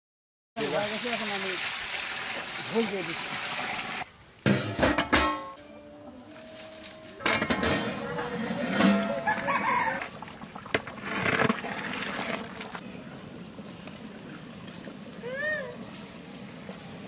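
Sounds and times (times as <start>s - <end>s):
chickens clucking: 7.8s - 10.2s
rooster crowing: 9.1s - 10.1s.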